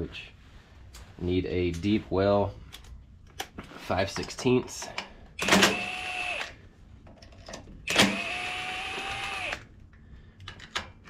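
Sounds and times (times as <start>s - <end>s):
cordless drill motor whine: 5.4s - 6.6s, 7.9s - 9.7s.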